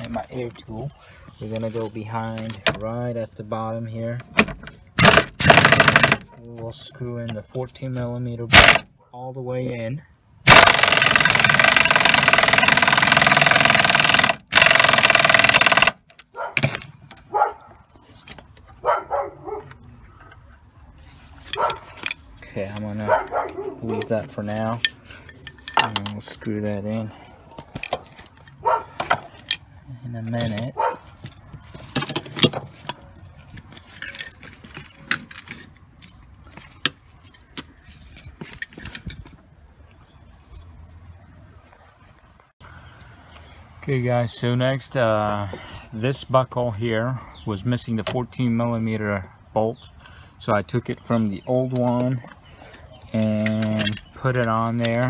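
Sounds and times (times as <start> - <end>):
air tool running bolt in: 10.5 - 16.0
light handling clicks and knocks: 21.5 - 26.6, 51.7 - 55.0
small metal parts clinking: 33.7 - 36.2.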